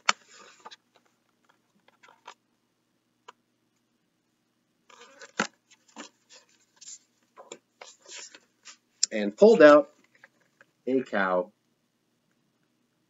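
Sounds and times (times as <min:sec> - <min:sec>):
book handling rustle: 0:00.0 - 0:02.4, 0:04.9 - 0:08.9.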